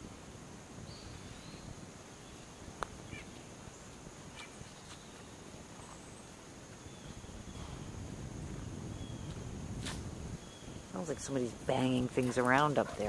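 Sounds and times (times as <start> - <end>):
high-pitched insect hum: 0.0 - 13.0
faint bird chirps: 0.8 - 8.0, 8.9 - 9.4, 10.4 - 10.9.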